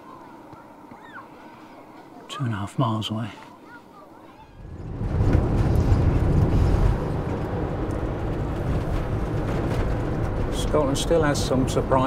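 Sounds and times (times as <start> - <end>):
low rumbling noise: 4.4 - 12.0.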